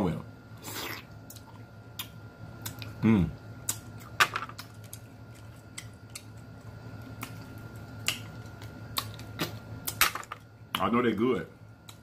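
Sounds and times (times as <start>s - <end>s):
steady low hum: 0.0s - 12.0s
wet eating clicks and smacks: 0.8s - 3.0s, 3.6s - 10.0s, 11.8s - 12.0s.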